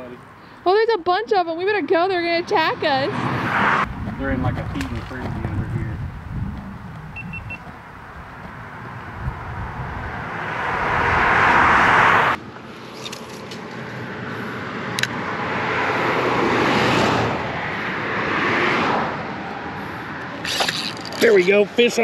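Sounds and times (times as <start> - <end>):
cars passing on highway: 0.0 - 22.0.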